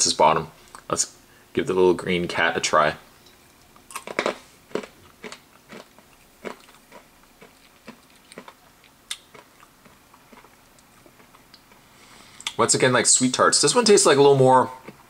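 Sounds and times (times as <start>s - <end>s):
person crunching hard candy: 3.9s - 11.5s.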